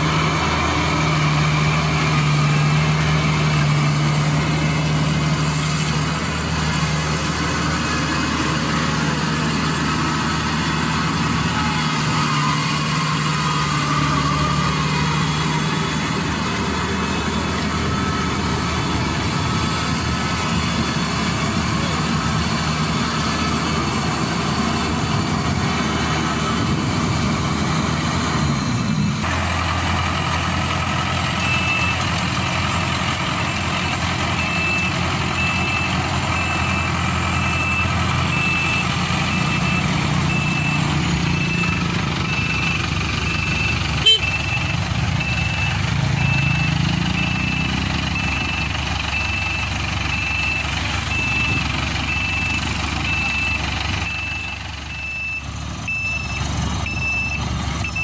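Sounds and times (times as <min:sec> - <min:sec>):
combine harvester engine running: 0:00.0 - 0:58.0
reversing alarm beeps: 0:31.3 - 0:32.2, 0:33.4 - 0:58.0.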